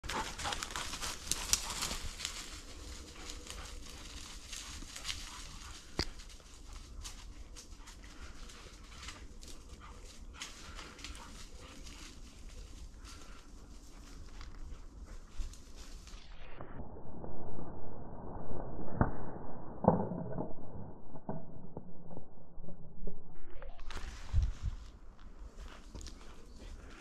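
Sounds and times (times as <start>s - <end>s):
footsteps through dry undergrowth: 0.0s - 16.4s, 23.8s - 27.0s
stems snapping: 0.3s - 2.5s.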